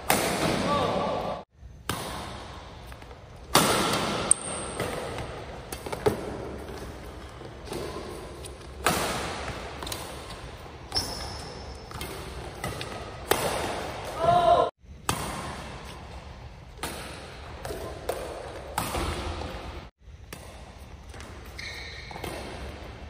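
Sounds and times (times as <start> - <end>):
rackets hitting shuttlecock: 0.0 - 14.4, 16.7 - 23.0
shoes squeaking on court: 2.6 - 14.1, 20.5 - 23.0.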